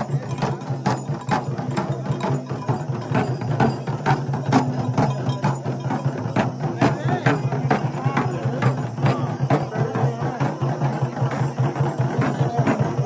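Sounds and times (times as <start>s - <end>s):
clacking percussion strikes: 0.0s - 13.0s.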